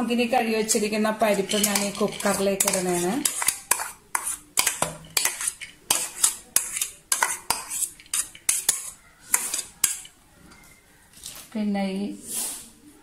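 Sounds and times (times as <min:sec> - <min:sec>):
steel spoon clinking on metal: 0:01.3 - 0:10.1.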